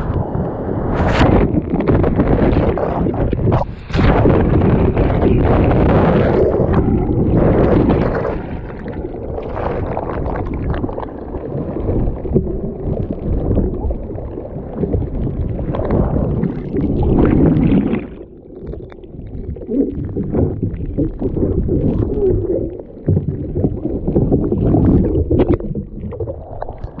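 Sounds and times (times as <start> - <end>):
ocean surf washing around kayak: 0.0 - 10.8.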